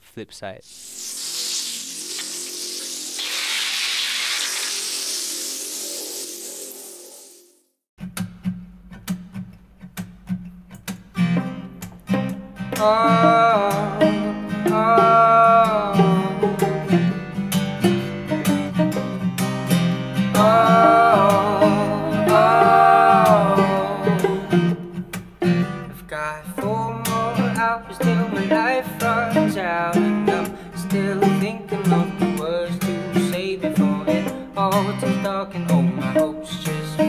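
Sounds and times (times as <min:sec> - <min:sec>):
acoustic guitar strumming: 0:08.0 - 0:37.0
sliding melody of long notes: 0:20.4 - 0:24.8.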